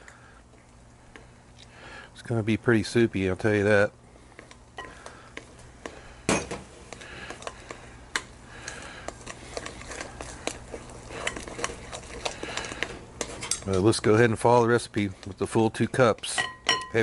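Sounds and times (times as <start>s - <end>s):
mixing in a glass bowl: 6.8s - 17.0s.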